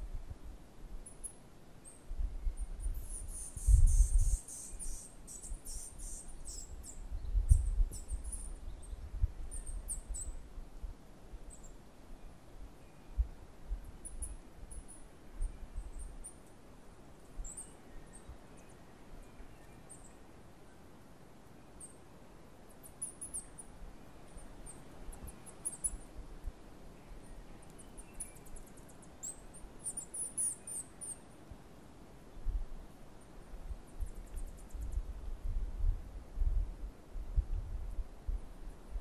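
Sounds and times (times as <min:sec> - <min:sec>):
wind gusting on microphone: 0:02.1 - 0:05.0, 0:05.7 - 0:10.9, 0:33.5 - 0:39.0.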